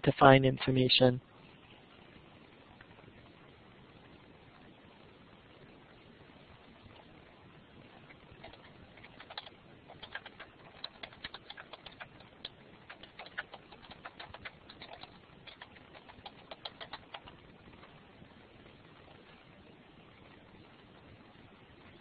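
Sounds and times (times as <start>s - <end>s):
computer keyboard typing: 8.0s - 17.4s.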